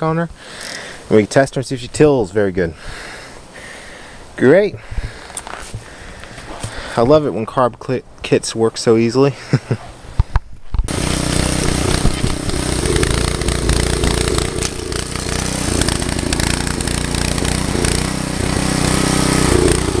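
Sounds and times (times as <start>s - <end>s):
garden tiller engine running: 10.9s - 20.0s.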